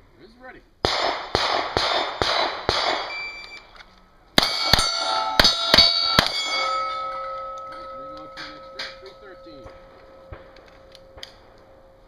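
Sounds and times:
pistol shots: 0.8s - 3.2s
steel targets clanging: 4.4s - 11.6s.

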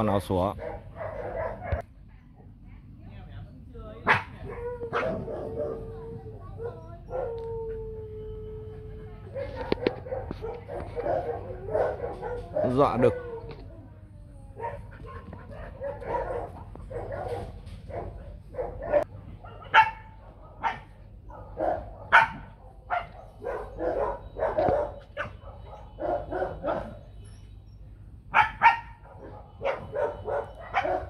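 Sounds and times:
dogs barking: 0.5s - 1.9s, 4.0s - 7.5s, 9.3s - 13.6s, 14.6s - 27.2s, 28.3s - 31.0s.

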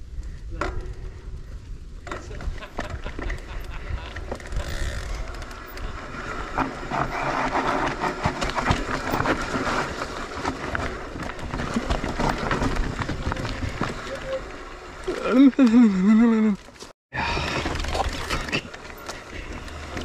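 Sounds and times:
bike rattling over bumps: 0.0s - 15.9s, 16.6s - 20.0s
tyres rolling over dirt: 2.0s - 20.0s.

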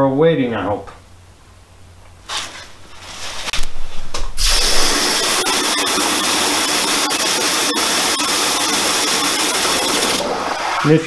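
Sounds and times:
hose spraying water into tub: 4.4s - 5.7s.

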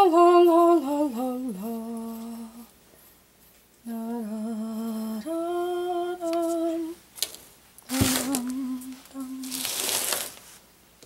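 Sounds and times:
rustling: 6.3s - 10.7s
woman humming: 7.9s - 9.6s.

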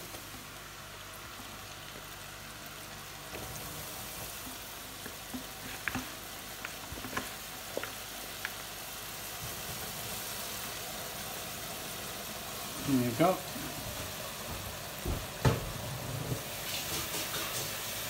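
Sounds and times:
oil sizzling in deep fryer: 0.0s - 18.0s
crackles and pops: 4.4s - 8.9s.

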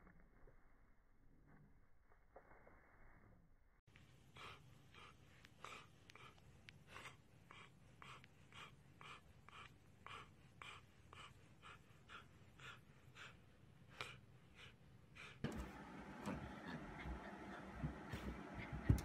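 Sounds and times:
dog panting: 3.9s - 19.0s.

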